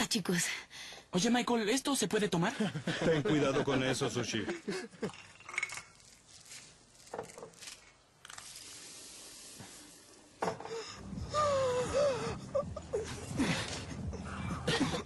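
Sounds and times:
glassware clinking: 5.0 - 6.0
liquid pouring: 5.0 - 10.5
hissing mixture: 7.6 - 10.9.

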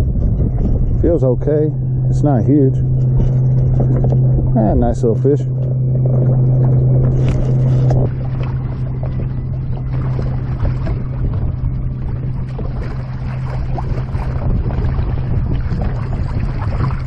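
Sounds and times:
steady low hum: 0.0 - 17.0
water lapping at boat: 0.0 - 17.0
wind buffeting microphone: 0.0 - 17.0
fish splashing: 5.6 - 17.0.

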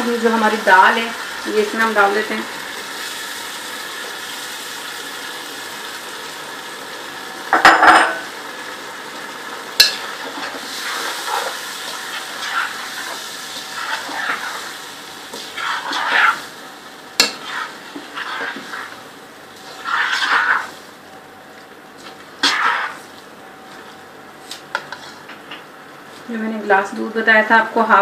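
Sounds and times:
food sizzling in a pot: 0.0 - 28.0
spoon scraping while stirring: 9.8 - 14.7, 15.3 - 16.5, 17.2 - 19.0, 19.6 - 20.8, 22.0 - 23.2, 24.5 - 25.4.

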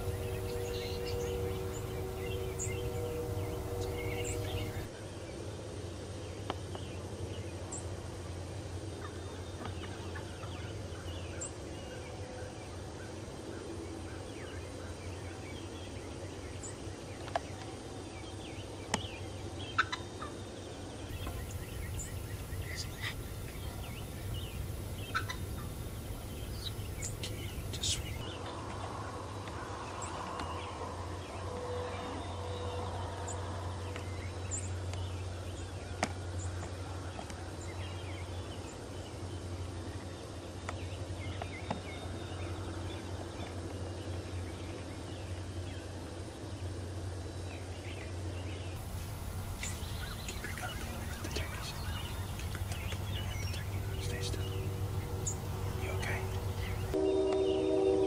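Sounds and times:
turkeys gobbling: 21.2 - 28.2.

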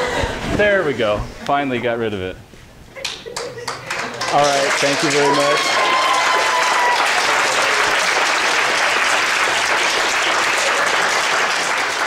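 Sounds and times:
students clapping: 3.1 - 12.0.

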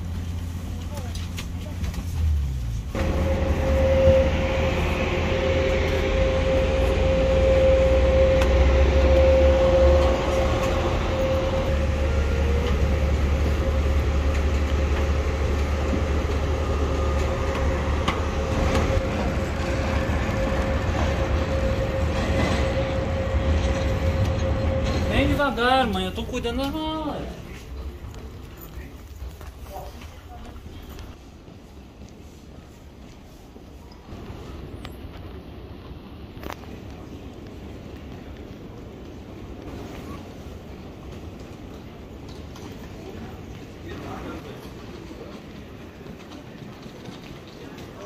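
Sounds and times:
low rumble: 2.0 - 26.6
machinery whine: 2.9 - 26.5.

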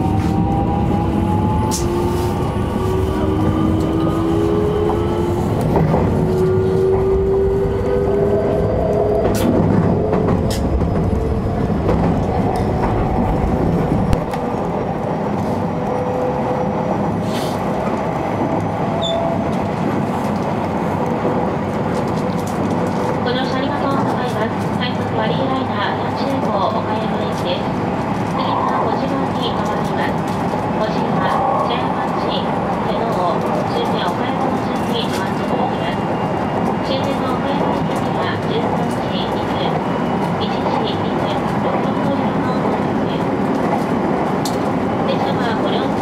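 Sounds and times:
wheels rumbling on rail: 0.0 - 46.0.

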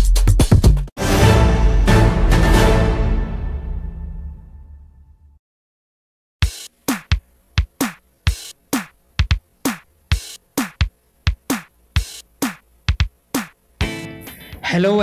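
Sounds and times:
drum-machine beat with punchy kicks: 0.0 - 0.9, 6.4 - 14.7.

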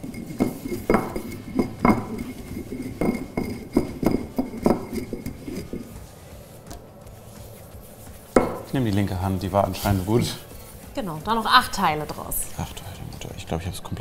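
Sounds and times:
glass knocking on work surface: 8.4 - 8.7.

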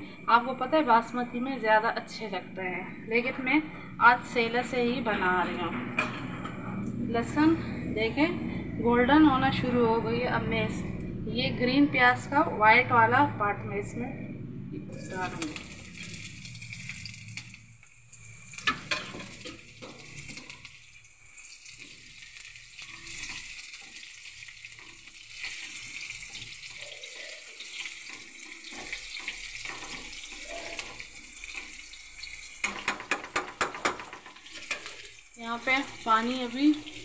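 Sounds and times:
onions sizzling in hot oil: 14.9 - 37.0.

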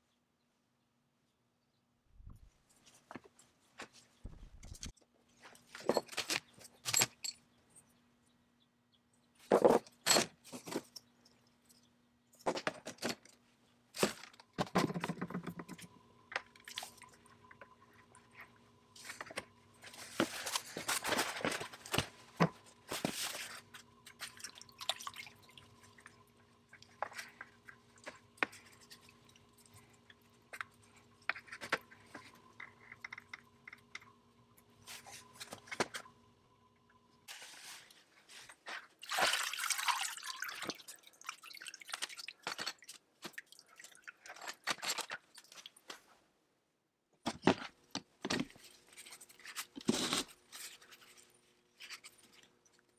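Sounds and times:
faint steady hum: 0.0 - 39.0
knocks clicks and scrapes of parts: 2.2 - 7.5, 9.4 - 16.6, 29.6 - 34.2
rustling: 18.2 - 24.4, 37.3 - 39.0.

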